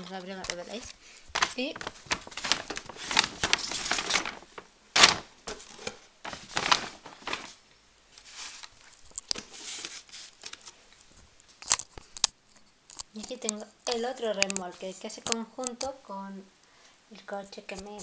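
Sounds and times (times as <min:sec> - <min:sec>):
bag and packaging rustling: 0:00.0 - 0:11.9.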